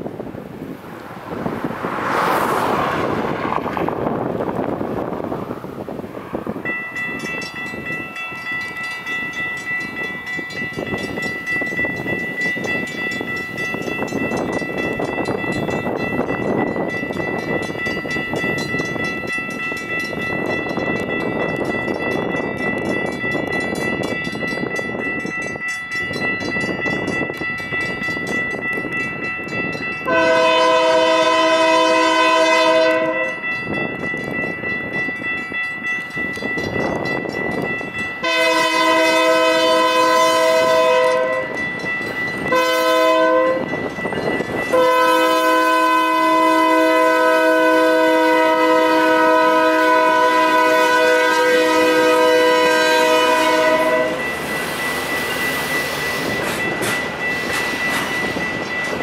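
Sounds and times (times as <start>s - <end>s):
crossing bell ringing: 0.0s - 59.0s
train rumble: 0.0s - 59.0s
locomotive horn blasts: 30.0s - 33.5s, 38.2s - 41.6s, 42.4s - 43.8s, 44.7s - 54.3s.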